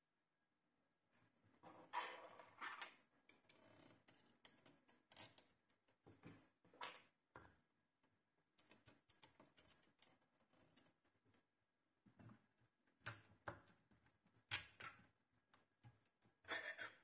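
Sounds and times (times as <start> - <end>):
faint clicks and scrapes of handling: 1.1 - 6.8, 8.4 - 11.5.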